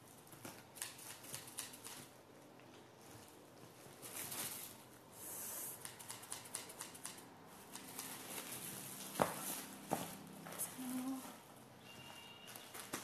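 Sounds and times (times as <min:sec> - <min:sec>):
plastic crinkling: 0:03.0 - 0:05.0.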